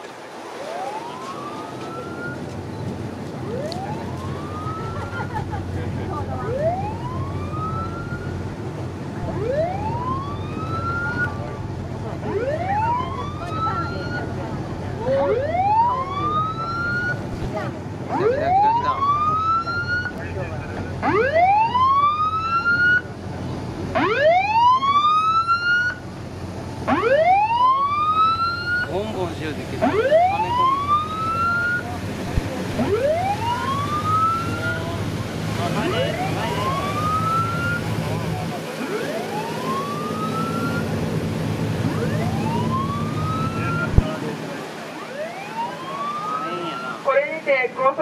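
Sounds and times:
steady rush of noise: 0:00.0 - 0:48.0
boat siren rising wails: 0:00.2 - 0:47.9.

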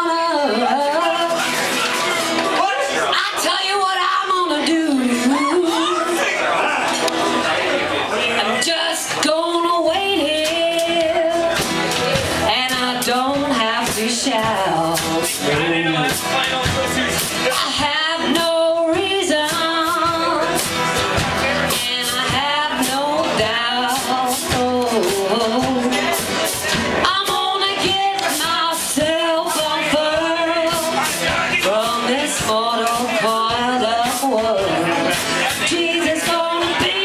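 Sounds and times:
person singing: 0:00.0 - 0:01.6, 0:17.4 - 0:37.0
banjo: 0:00.0 - 0:37.0
strummed acoustic guitars: 0:00.0 - 0:37.0
upright bass: 0:00.0 - 0:37.0.

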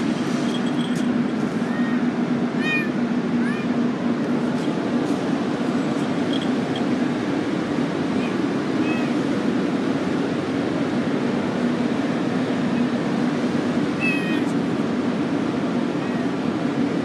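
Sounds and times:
low background hum: 0:00.0 - 0:17.0
kitten mewing: 0:01.6 - 0:03.8, 0:08.2 - 0:09.2, 0:14.0 - 0:14.5.

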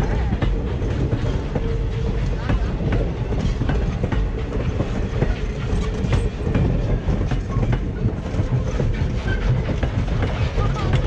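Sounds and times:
train wheels clicking over rail joints: 0:00.0 - 0:11.0.

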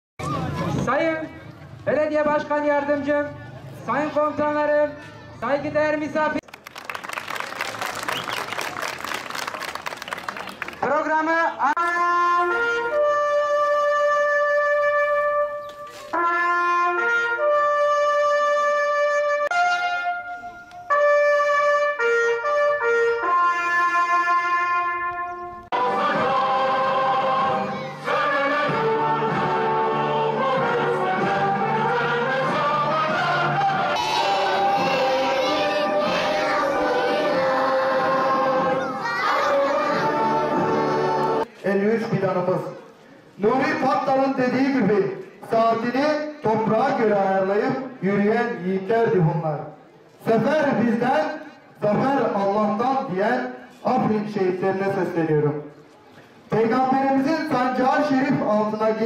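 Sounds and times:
brass horn playing a call: 0:11.8 - 0:38.6
children singing: 0:25.8 - 0:41.4.

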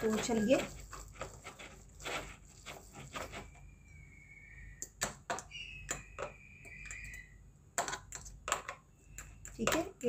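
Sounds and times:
faint high steady tone: 0:03.5 - 0:07.6.

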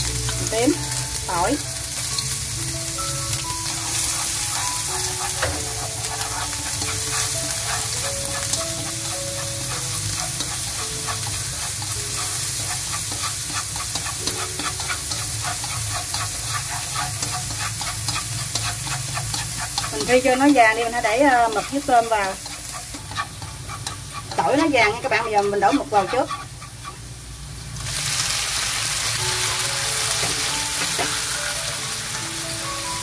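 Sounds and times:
garlic sizzling in hot oil: 0:00.0 - 0:33.0
chopsticks tapping pan: 0:03.4 - 0:27.0.

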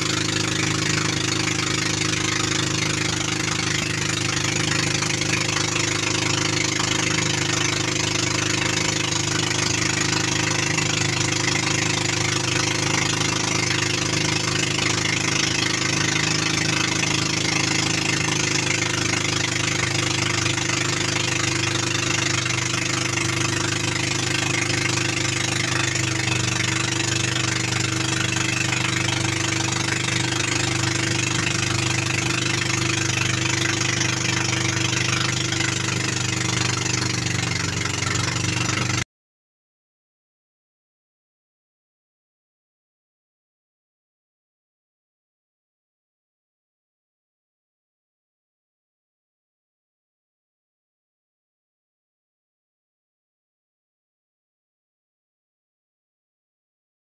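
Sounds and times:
boat engine running: 0:00.0 - 0:39.0.

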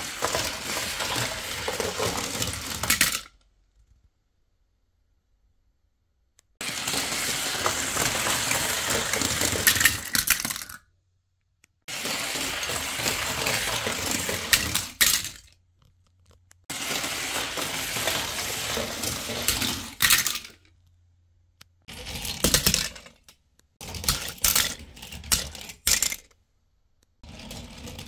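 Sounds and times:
toy cars rolling on plastic ramp: 0:00.0 - 0:03.4, 0:06.6 - 0:10.8, 0:11.9 - 0:15.5, 0:16.7 - 0:20.7, 0:21.9 - 0:26.3, 0:27.2 - 0:28.0
toy cars clinking together: 0:06.6 - 0:10.8, 0:16.7 - 0:20.6, 0:22.0 - 0:26.3.

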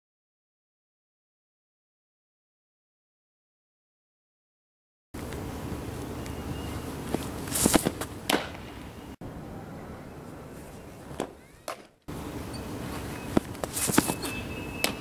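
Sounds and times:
background noise: 0:05.2 - 0:15.0
softballs smacking into a mitt: 0:07.1 - 0:08.7.

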